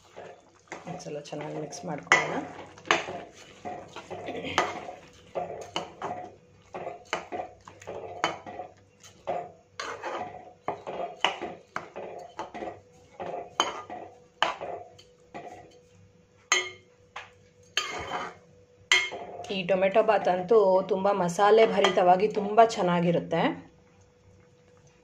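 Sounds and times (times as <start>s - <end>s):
metal spoon scraping a pot: 0.0s - 15.9s, 17.6s - 19.6s, 21.6s - 22.1s.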